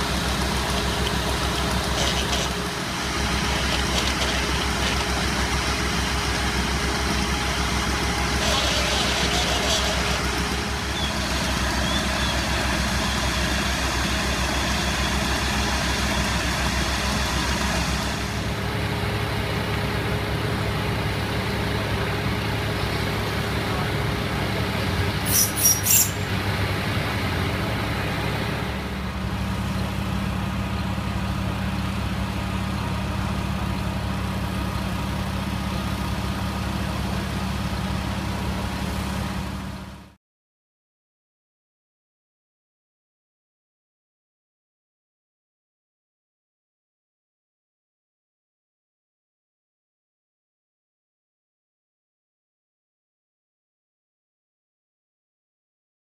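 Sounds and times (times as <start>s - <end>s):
diesel engines running: 0.0s - 40.2s
sharp high-pitched hisses: 25.3s - 26.2s.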